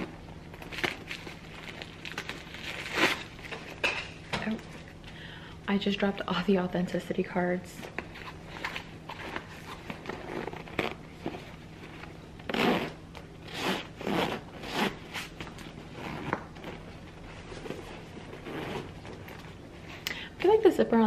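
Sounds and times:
nylon rustling: 8.0s - 19.9s
zipper pulled back and forth: 9.3s - 11.4s, 12.5s - 16.8s, 18.2s - 19.3s.

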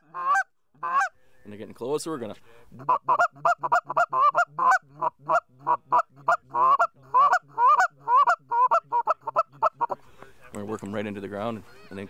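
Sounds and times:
goose call clucks and honks: 0.0s - 1.2s, 2.7s - 10.0s.

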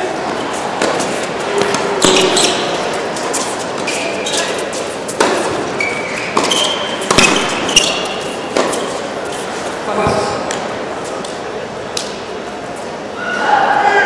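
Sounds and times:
shoes squeaking on court: 0.0s - 11.2s
rackets hitting tennis ball: 0.0s - 12.4s
ball bouncing on hard court: 0.8s - 2.8s, 6.2s - 8.9s, 10.0s - 10.6s.

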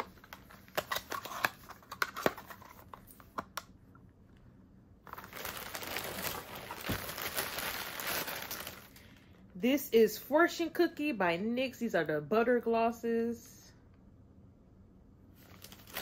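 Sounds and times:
packaging crinkling: 0.0s - 3.4s, 5.0s - 9.2s, 15.4s - 16.0s.

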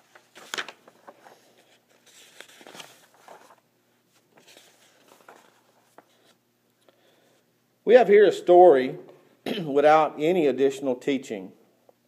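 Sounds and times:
paper notes rustling: 0.0s - 6.4s.

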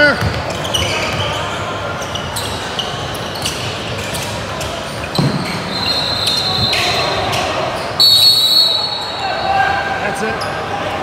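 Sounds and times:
basketball bouncing: 0.0s - 1.2s
sneakers squeaking: 0.0s - 10.8s
crowd voices: 0.0s - 11.0s.

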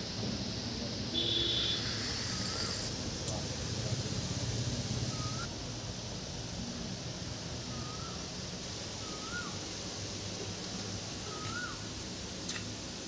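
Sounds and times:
steady background hiss: 0.0s - 13.0s
short bird calls: 9.0s - 9.6s, 11.2s - 11.8s.

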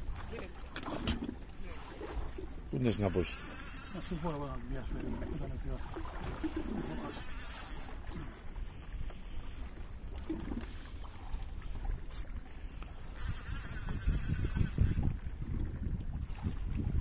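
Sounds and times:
sea: 0.0s - 17.0s
wind: 0.0s - 17.0s.

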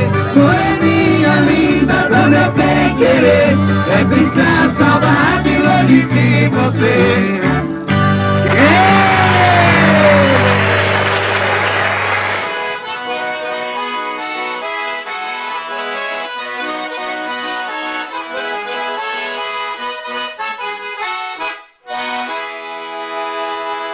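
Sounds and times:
live concert sound: 0.0s - 13.6s
accordion music: 0.0s - 23.9s.

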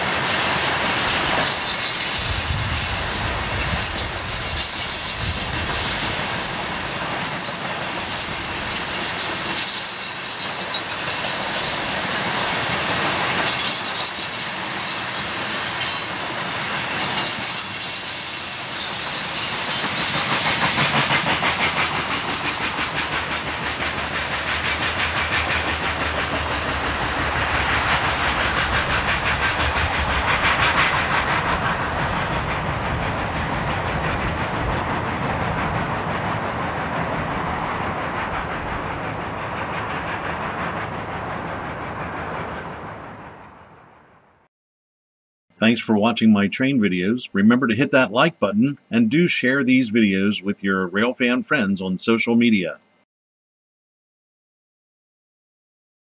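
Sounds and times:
freight train rolling on rails: 0.0s - 44.5s
wheels squealing: 1.4s - 23.6s.

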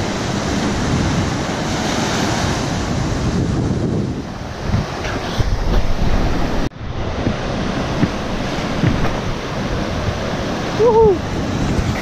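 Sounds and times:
wind buffeting microphone: 0.0s - 12.0s
surf breaking: 4.5s - 12.0s.

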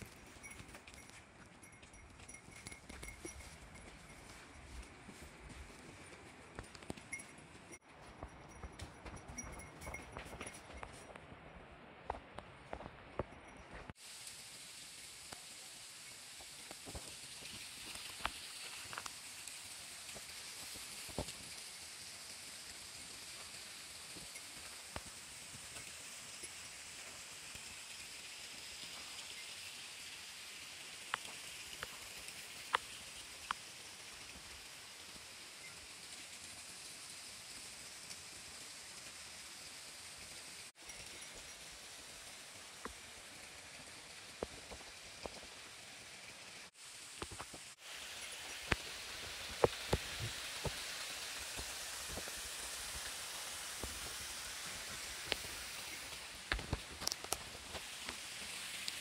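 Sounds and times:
mountain stream rushing: 16.0s - 59.0s.

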